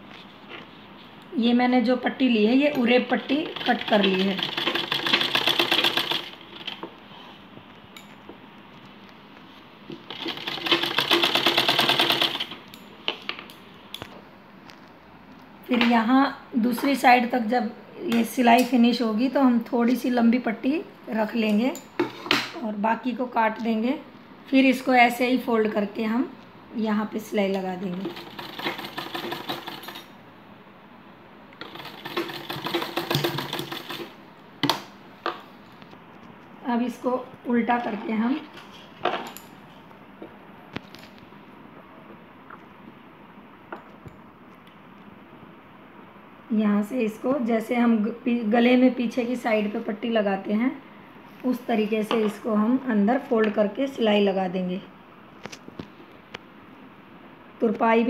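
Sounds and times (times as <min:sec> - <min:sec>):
sewing machine running: 0:03.1 - 0:06.8, 0:10.1 - 0:12.6, 0:28.0 - 0:30.1, 0:31.6 - 0:34.2.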